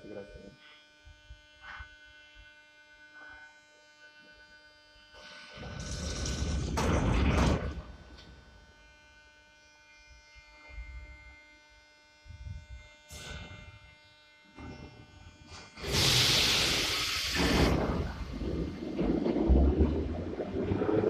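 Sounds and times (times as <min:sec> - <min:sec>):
compressed air hissing: 0:15.8 - 0:18.8.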